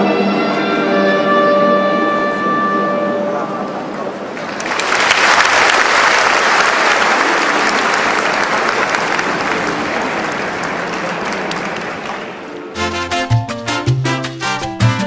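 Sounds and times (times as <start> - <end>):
large audience applauding: 4.2 - 12.7.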